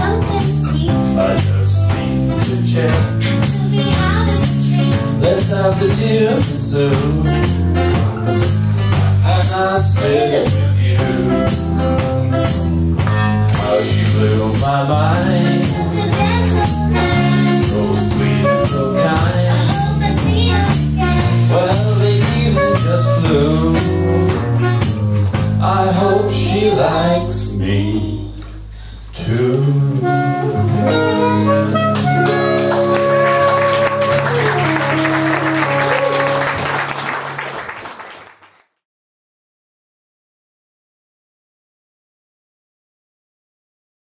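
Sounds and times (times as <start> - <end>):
person singing: 0.0 - 7.6, 9.2 - 11.6, 13.6 - 24.3, 25.6 - 28.5, 32.8 - 36.6
drums steady beat: 0.0 - 26.4, 30.8 - 36.8
live jazzy band playing: 0.0 - 37.8.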